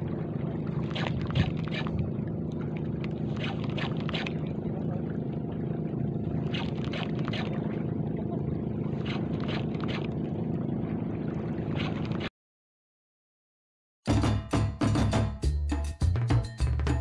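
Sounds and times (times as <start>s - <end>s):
low engine hum: 0.0s - 12.3s.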